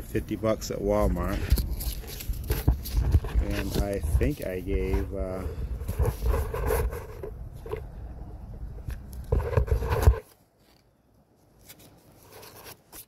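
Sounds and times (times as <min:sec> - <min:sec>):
wind rumble on microphone: 0:00.0 - 0:10.2
phone handling and rustling: 0:01.0 - 0:07.9, 0:08.8 - 0:10.8.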